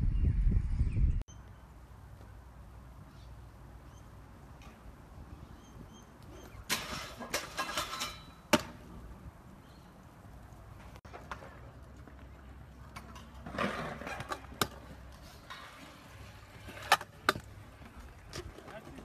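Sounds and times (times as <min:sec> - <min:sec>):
scooter grinding on metal rail: 0:06.4 - 0:08.6, 0:13.0 - 0:17.4
scooter landing clack on asphalt: 0:06.6 - 0:08.9.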